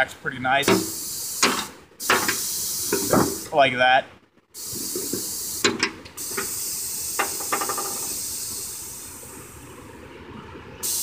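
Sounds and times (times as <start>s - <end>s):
compressed air hissing from valves: 0.6s - 3.6s, 4.5s - 9.7s.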